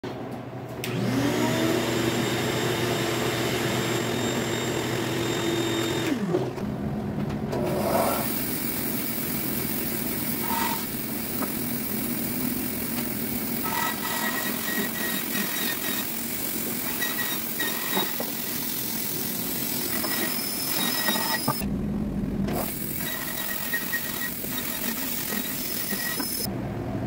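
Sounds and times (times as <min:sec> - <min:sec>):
bandsaw cutting wood: 0:07.7 - 0:21.6, 0:22.5 - 0:26.5
electric motor whining: 0:07.8 - 0:21.7, 0:22.5 - 0:26.5.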